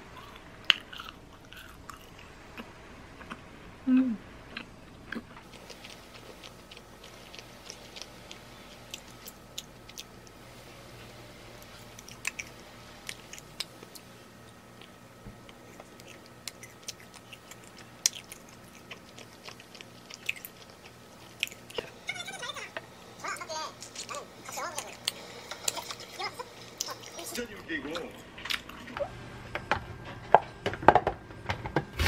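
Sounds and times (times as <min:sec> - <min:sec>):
faint steady hum: 0:00.0 - 0:32.0
person chewing bread: 0:00.2 - 0:03.4, 0:04.5 - 0:21.9, 0:23.8 - 0:27.4.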